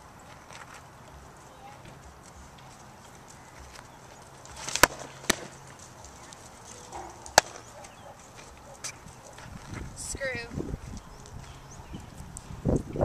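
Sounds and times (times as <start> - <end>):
ball smacking into glove: 4.6 - 5.5, 7.3 - 7.6
ball popping into leather mitt: 7.3 - 7.6.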